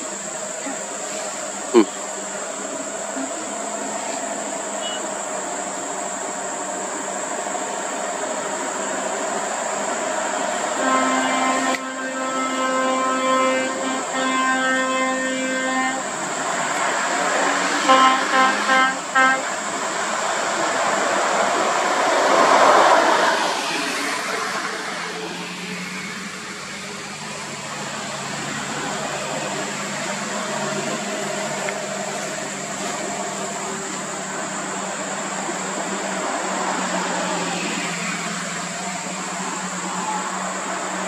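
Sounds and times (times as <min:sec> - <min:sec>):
heavy diesel trucks climbing: 0:00.0 - 0:41.0
passing car traffic: 0:00.0 - 0:41.0
short horn toots: 0:10.8 - 0:16.2, 0:17.8 - 0:19.6.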